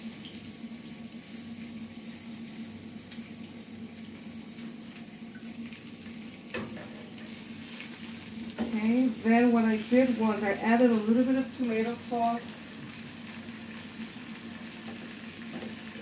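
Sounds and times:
chicken sizzling: 0.0s - 16.0s
skillet knocking on grate: 6.5s - 7.3s.

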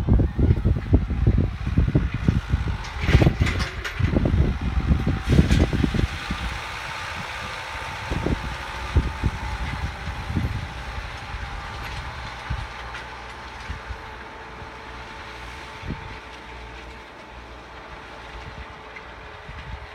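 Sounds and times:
tractor diesel engine running: 0.0s - 19.9s.

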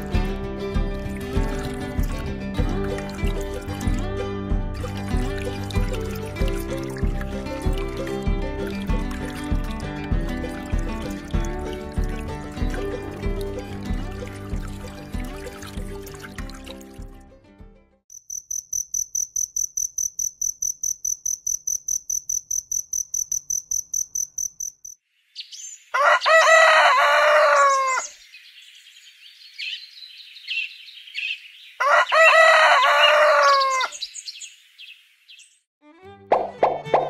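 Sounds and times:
insect chirping: 18.1s - 25.9s
small birds chirping: 22.0s - 26.0s, 27.8s - 31.8s, 33.4s - 35.7s
rooster crowing: 25.9s - 28.2s, 31.8s - 34.0s.

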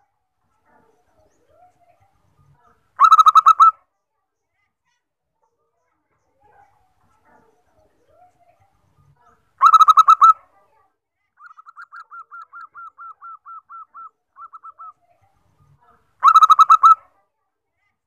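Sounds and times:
dove cooing: 11.6s - 14.9s.

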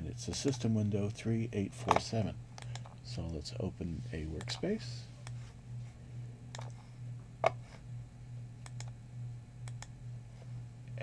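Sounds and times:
steady low hum: 0.0s - 11.0s
computer mouse clicks: 2.6s - 2.9s, 6.5s - 6.8s, 8.6s - 9.0s, 9.6s - 9.9s.

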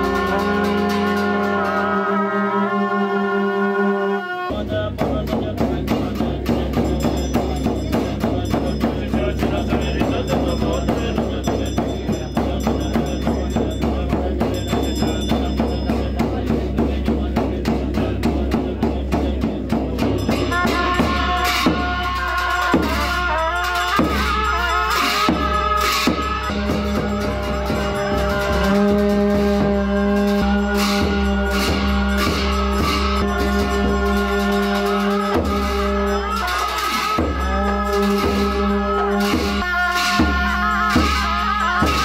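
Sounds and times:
frame drum beat: 0.0s - 1.9s, 4.5s - 42.0s
conch shell horns: 0.0s - 4.8s, 20.3s - 42.0s
cymbals: 0.0s - 42.0s.

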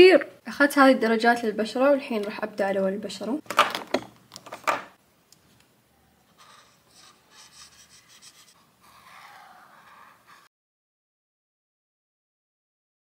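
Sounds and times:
marker scratching on paper: 6.3s - 10.5s.

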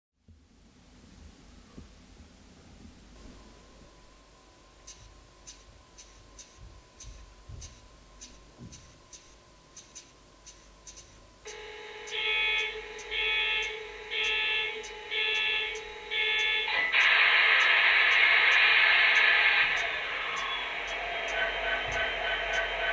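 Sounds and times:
alarm-like beeps: 10.9s - 22.9s
steady electronic tone: 11.4s - 22.9s
loud steady rushing noise: 11.5s - 22.9s.

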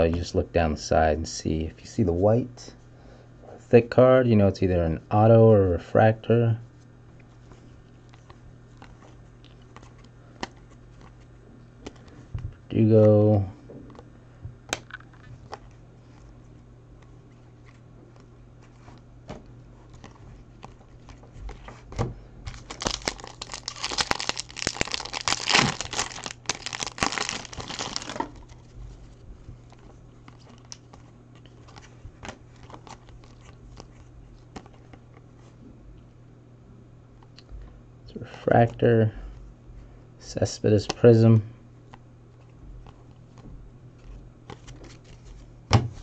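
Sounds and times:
low steady hum: 0.0s - 46.0s
foil wrapper crinkling and tearing: 22.5s - 28.7s.

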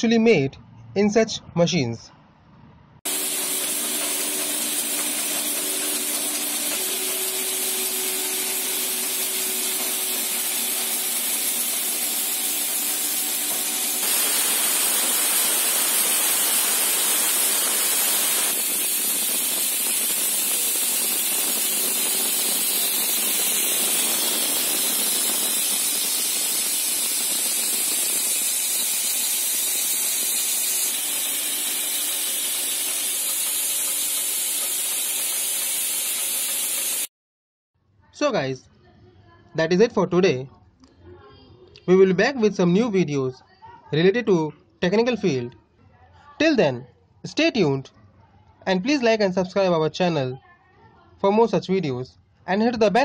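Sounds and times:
machine hiss: 3.1s - 37.1s.

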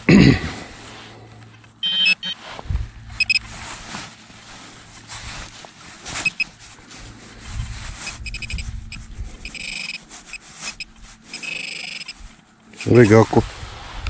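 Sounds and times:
metal detector beeps and buzz: 1.8s - 2.4s, 3.1s - 3.5s, 6.2s - 6.5s, 8.0s - 13.2s
trowel scraping in earth: 2.3s - 14.0s.

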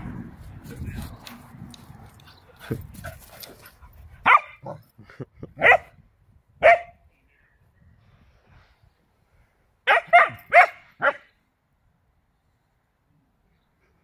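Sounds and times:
dog barking: 4.2s - 4.8s, 5.6s - 5.9s, 6.6s - 7.0s, 9.9s - 11.3s.

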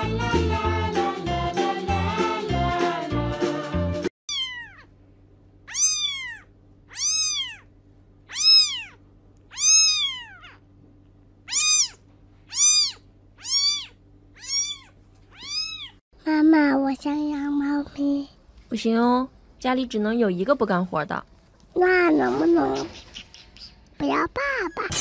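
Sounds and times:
background music: 0.0s - 4.1s
kitten meowing: 4.3s - 4.9s, 5.7s - 7.7s, 8.3s - 10.6s, 11.5s - 16.0s.

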